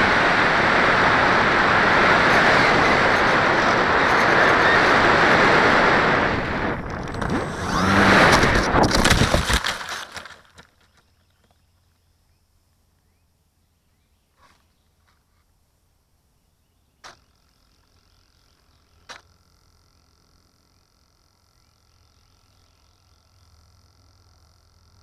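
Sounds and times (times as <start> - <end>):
air rushing over microphone: 0.0 - 9.6
glider brushing into weeds: 6.9 - 10.6.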